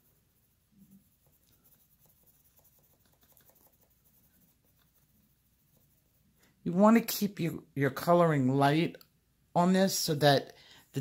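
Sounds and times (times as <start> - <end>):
colored pencil scratching on paper: 0.0 - 6.6.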